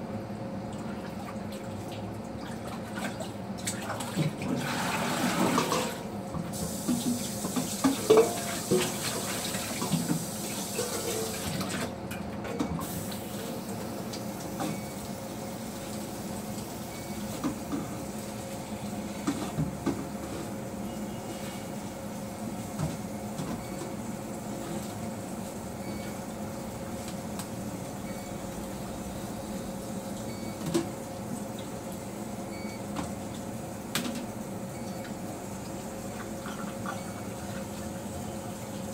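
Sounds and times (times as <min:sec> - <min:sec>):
colander and dishes clattering: 0:07.8 - 0:09.0.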